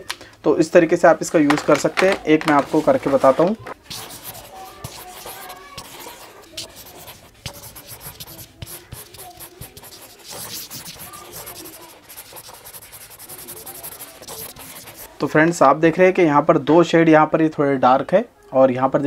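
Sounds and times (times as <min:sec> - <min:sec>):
marker rubbing on paper: 0:02.7 - 0:15.1.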